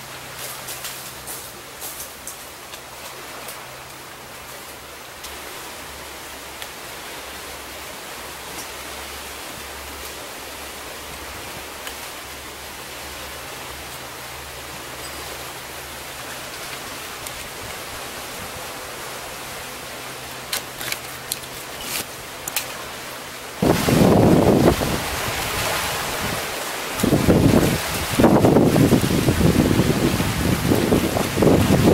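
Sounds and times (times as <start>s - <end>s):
sea water washing over rocks: 0.0s - 31.9s
fishing gear clicks: 20.5s - 22.8s.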